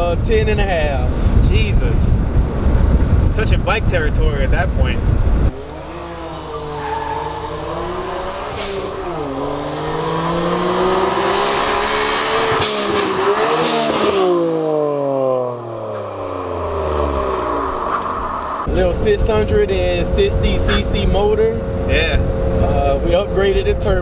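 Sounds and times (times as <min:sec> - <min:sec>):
turbocharged car engine revving: 0:05.5 - 0:24.0.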